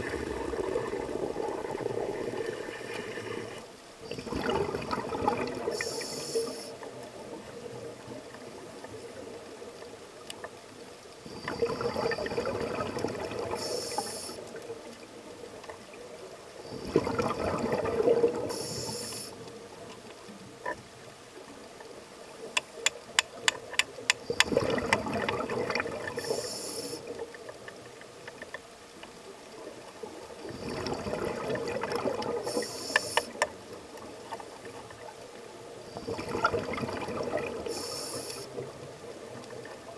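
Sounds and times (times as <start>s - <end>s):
scuba exhaled bubbles: 0.0s - 8.4s, 11.2s - 14.7s, 16.6s - 19.4s, 24.2s - 27.3s, 30.4s - 33.5s, 35.8s - 39.9s
regulator hiss: 5.7s - 6.8s, 13.5s - 14.6s, 18.4s - 19.5s, 26.0s - 27.2s, 32.4s - 33.4s, 37.6s - 38.6s.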